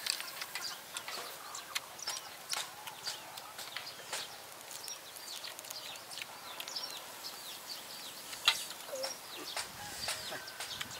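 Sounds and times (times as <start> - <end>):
birds chirping: 0.0 - 10.9
low bird call: 8.2 - 10.9.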